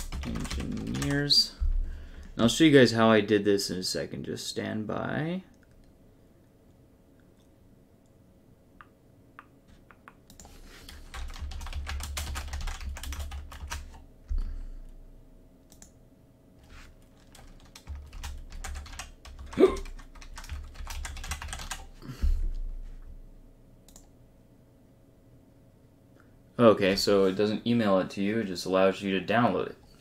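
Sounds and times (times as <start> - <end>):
typing on a keyboard: 0.0 - 1.3, 9.9 - 14.0, 17.1 - 21.9.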